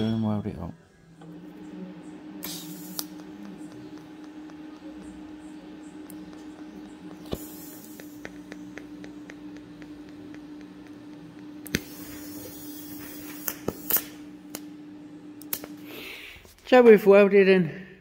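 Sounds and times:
welding hum: 1.0 - 16.6
welding arc hiss: 2.3 - 5.1, 6.1 - 14.6
sharp clicks: 2.4 - 12.0.

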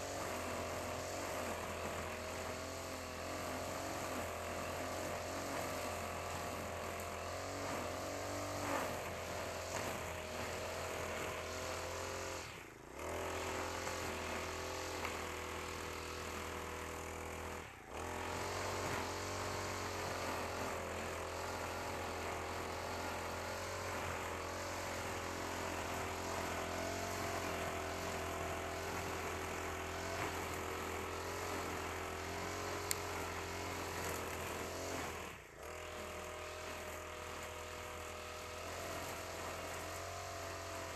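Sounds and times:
brush cutter engine mowing grass: 0.0 - 40.9.

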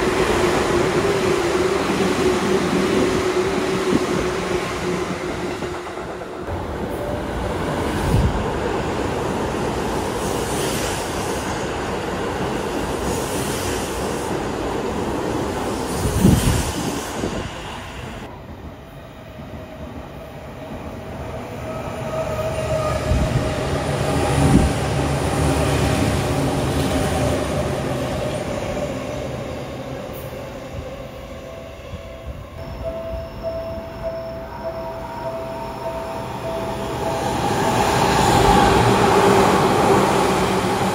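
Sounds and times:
train rushing past: 19.6 - 40.9
train low rumble: 22.0 - 40.9.

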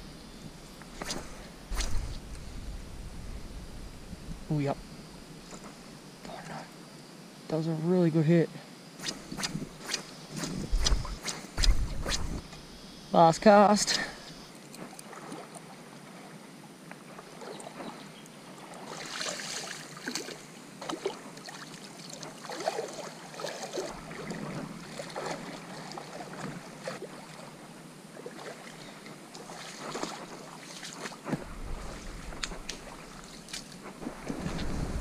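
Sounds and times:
wind rumble on microphone: 0.0 - 5.4, 9.4 - 12.4, 31.3 - 35.0
shallow water sloshing and splashing: 14.8 - 16.3, 17.0 - 35.0.

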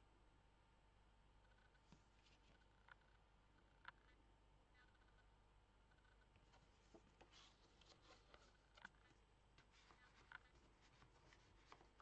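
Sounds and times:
paper and card rustling: 6.5 - 12.0.

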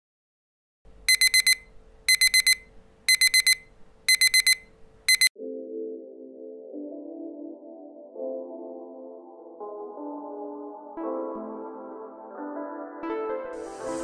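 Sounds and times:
digital alarm beeping: 1.1 - 5.3
soft ambient music: 5.4 - 14.0.

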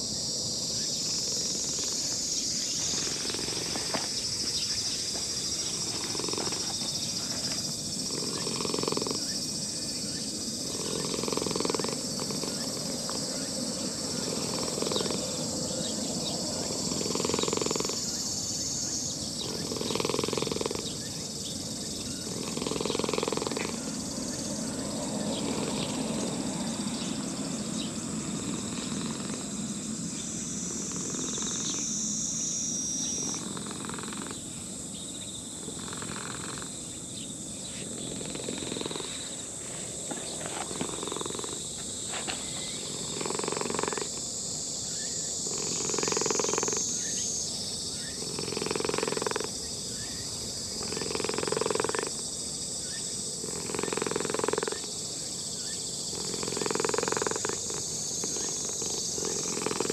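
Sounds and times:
cat purring: 5.6 - 9.4, 10.6 - 13.2, 14.1 - 15.4, 16.6 - 18.1, 19.4 - 21.0, 22.2 - 23.8, 25.3 - 26.4, 28.3 - 29.6, 30.7 - 31.8, 33.2 - 34.4, 35.7 - 36.7, 38.0 - 39.2, 40.6 - 41.6, 42.8 - 44.2, 45.5 - 46.8, 48.2 - 49.5, 50.8 - 52.1, 53.4 - 54.8, 56.1 - 59.9.

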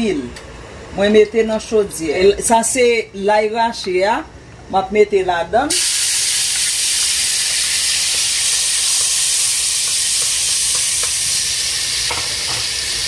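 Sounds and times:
garlic sizzling in hot oil: 5.7 - 13.0.

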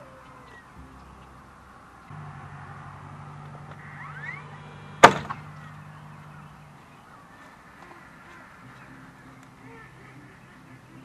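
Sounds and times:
faint low hum: 0.0 - 11.0
sharp loud knock: 5.0 - 5.4.

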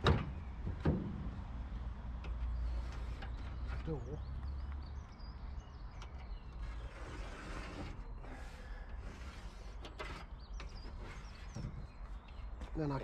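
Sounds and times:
moulding strip rubbing and scraping: 6.6 - 11.6.

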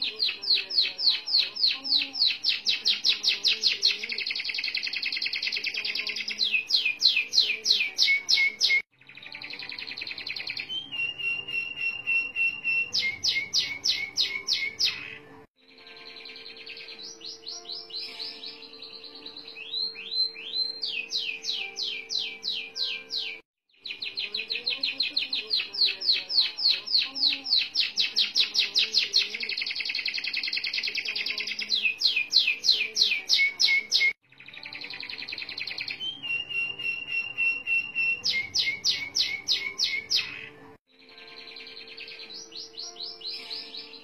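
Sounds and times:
canary singing trills: 0.0 - 44.0.

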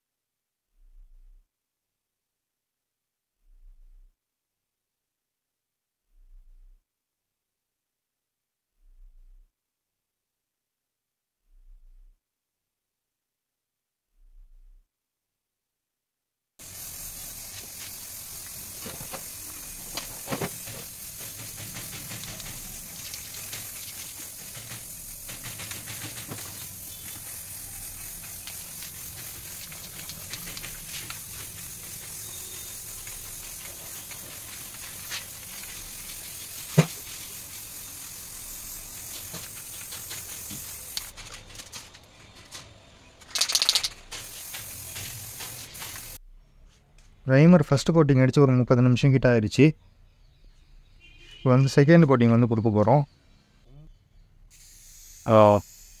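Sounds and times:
spray can hissing: 16.6 - 41.7, 43.3 - 46.2, 54.5 - 56.0.

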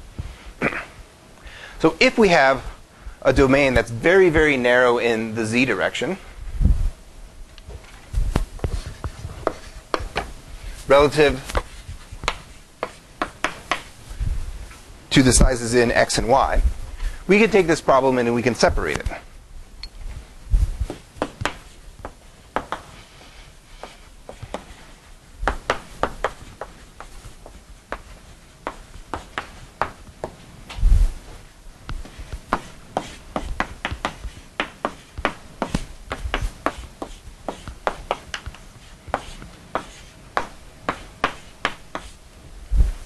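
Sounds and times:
chalk tapping and scratching: 8.6 - 10.3, 11.3 - 13.9, 20.9 - 30.4, 31.9 - 42.2.

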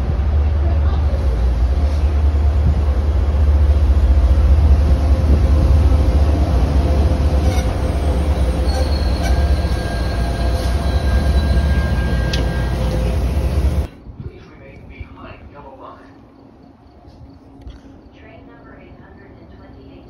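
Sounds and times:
train wheels rumbling on rails: 0.0 - 15.1
wheel squeal: 7.4 - 13.0.

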